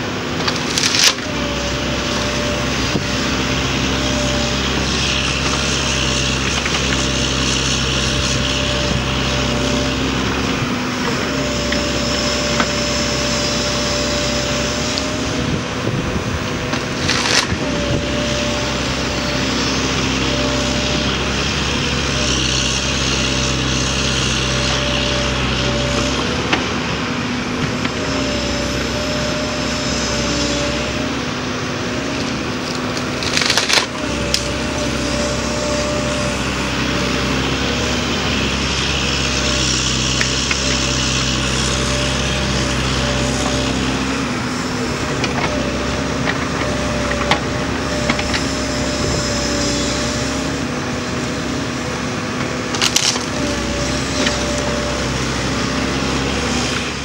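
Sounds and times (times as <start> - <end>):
excavator diesel engine: 0.0 - 57.0
wood cracking: 0.4 - 1.3, 16.8 - 17.6, 32.2 - 34.6, 52.7 - 53.4.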